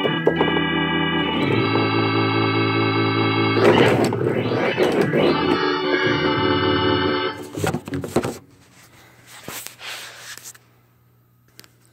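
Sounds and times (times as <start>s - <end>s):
held organ chord: 0.0s - 8.2s.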